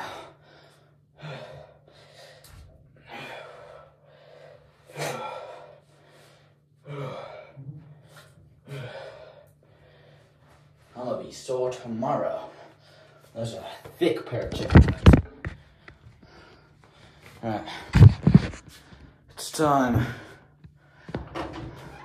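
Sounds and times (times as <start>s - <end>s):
man breathing hard: 0.0s - 10.9s, 15.4s - 22.0s.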